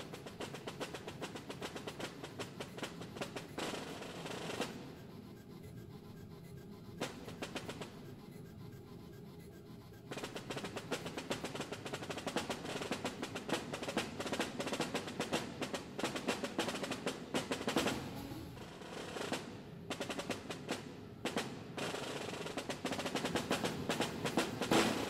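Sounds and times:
snare drum played with sticks: 0.0 - 4.9, 10.1 - 25.0.

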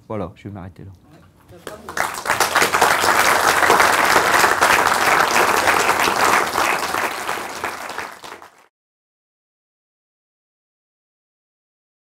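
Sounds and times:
audience applauding: 1.6 - 8.7.

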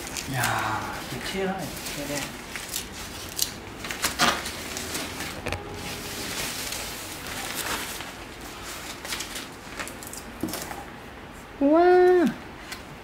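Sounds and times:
wrap rustling: 0.0 - 10.1.

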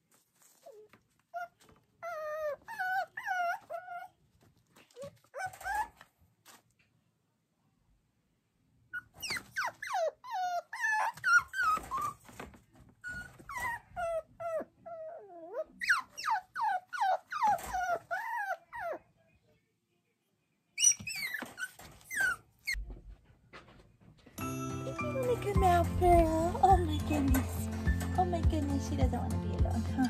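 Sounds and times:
puppy whining and yelping: 0.5 - 4.2, 4.9 - 6.1, 9.0 - 12.4, 13.0 - 19.0, 20.8 - 22.8.

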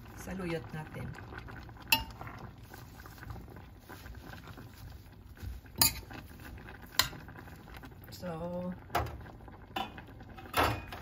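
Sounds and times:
leaves stirred in pot: 0.0 - 11.0
metal spoon clinking on pot: 1.9 - 2.2, 5.8 - 6.1.

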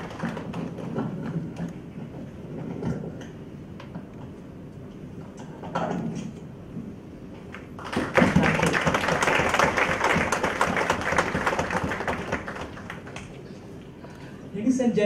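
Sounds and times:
audience applauding: 0.0 - 1.0, 7.8 - 13.5.

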